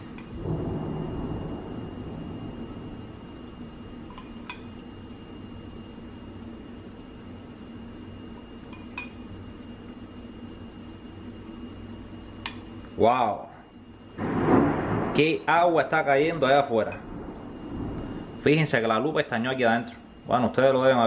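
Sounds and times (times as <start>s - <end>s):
metal spoon clinking on plate: 4.1s - 4.7s, 8.7s - 9.2s.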